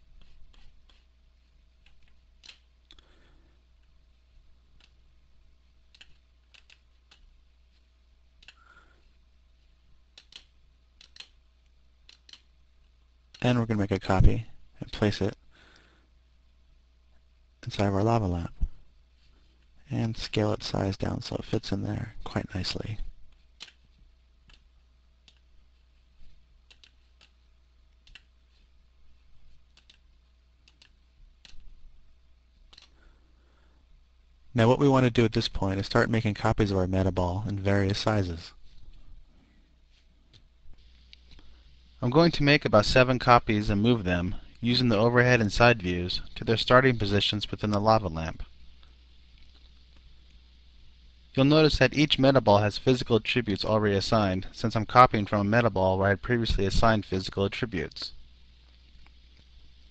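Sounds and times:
low electrical hum: 0.0s - 59.9s
mouse and keyboard clicks: 1.8s - 3.0s, 5.9s - 7.3s, 8.4s - 8.6s, 10.1s - 11.4s, 12.0s - 12.5s, 23.3s - 23.8s, 26.6s - 27.4s, 28.0s - 28.3s, 29.7s - 31.7s, 32.7s - 33.0s.

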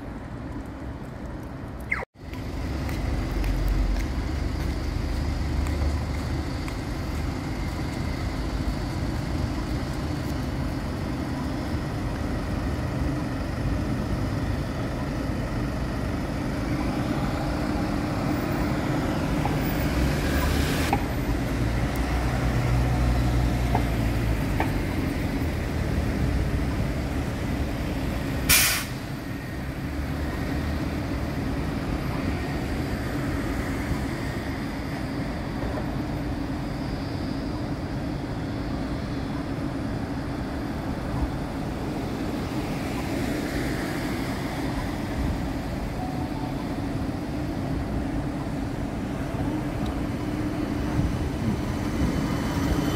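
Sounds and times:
road traffic: 0.0s - 52.9s
tram pulling in: 2.2s - 52.9s
air release hiss: 28.5s - 29.1s.

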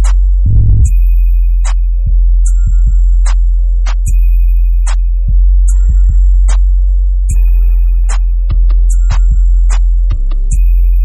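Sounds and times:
sharp ticking percussion: 0.0s - 5.0s
background music with deep bass: 0.0s - 11.0s.

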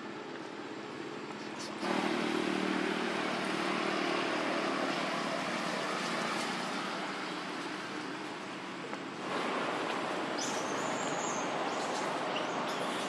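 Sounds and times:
motor droning: 1.8s - 8.0s.

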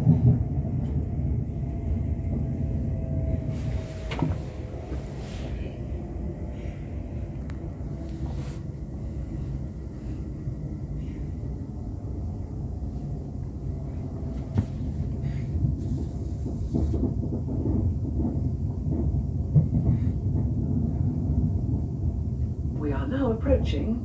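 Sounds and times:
train carriage rumble: 0.0s - 24.0s.

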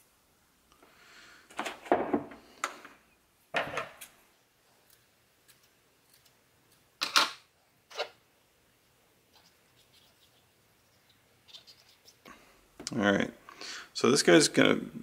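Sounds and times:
objects set down on tabletop: 1.5s - 4.0s.

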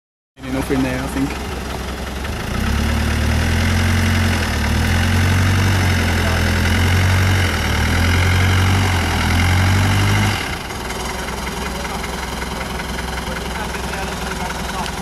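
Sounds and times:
truck engine pulling under load: 0.4s - 15.0s.

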